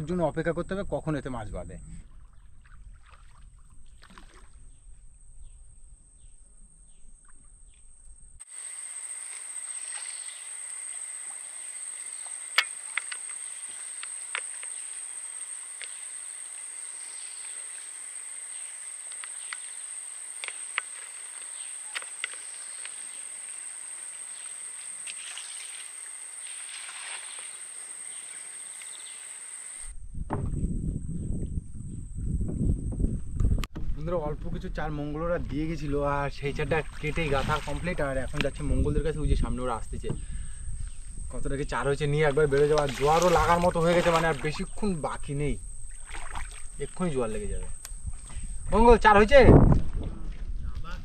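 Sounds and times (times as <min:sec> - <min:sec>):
high-pitched insect chorus: 0:08.4 - 0:29.9, 0:36.7 - 0:49.6.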